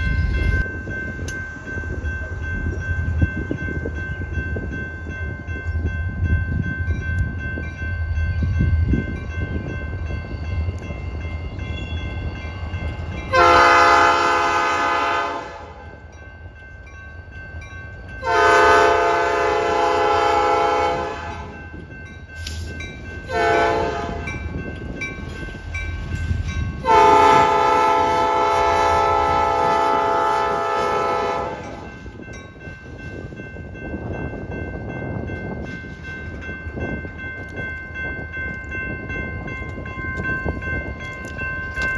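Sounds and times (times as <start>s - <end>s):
locomotive air horn: 13.3s - 15.8s, 18.2s - 21.6s, 23.3s - 24.3s, 26.8s - 31.9s.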